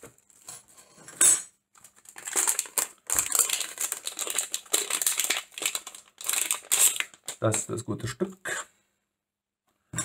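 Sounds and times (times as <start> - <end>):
plastic wrapping crinkling: 1.8 - 7.8.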